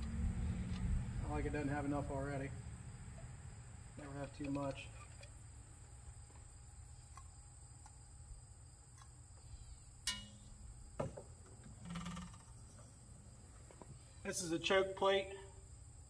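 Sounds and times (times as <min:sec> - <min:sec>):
low hum: 0:00.0 - 0:14.2
thin high-pitched whine: 0:09.5 - 0:10.7.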